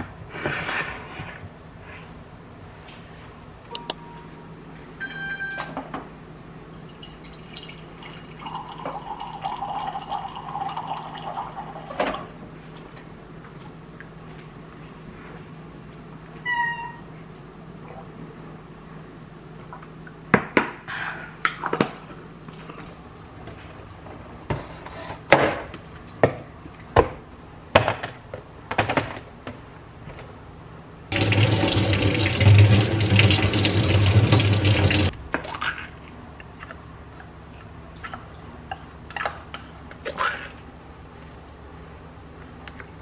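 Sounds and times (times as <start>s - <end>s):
kitchen tap running: 31.1s - 35.1s.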